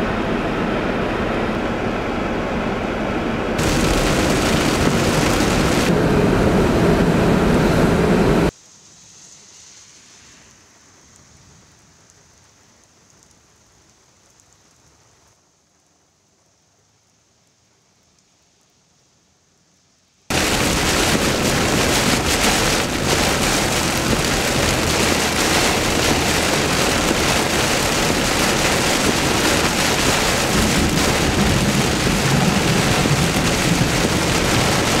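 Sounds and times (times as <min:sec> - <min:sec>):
heavy rain on a vehicle: 0:03.6 - 0:08.5, 0:20.3 - 0:35.0.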